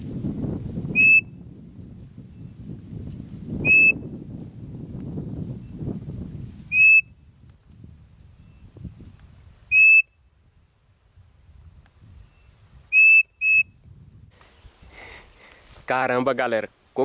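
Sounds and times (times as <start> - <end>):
bird call whistle notes: 0.9 - 1.4, 3.6 - 4.0, 6.7 - 7.2, 9.7 - 10.2, 12.9 - 13.8.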